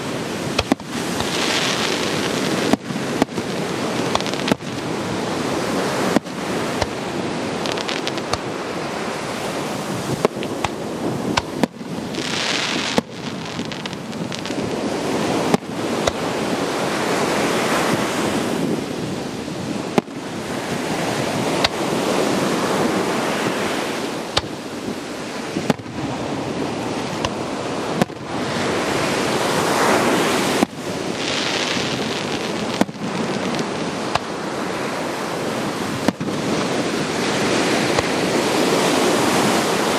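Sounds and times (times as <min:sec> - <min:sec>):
rushing rumble: 0:00.0 - 0:39.9
firework shells bursting: 0:00.1 - 0:16.9, 0:23.5 - 0:26.0, 0:30.5 - 0:34.6, 0:35.9 - 0:38.6.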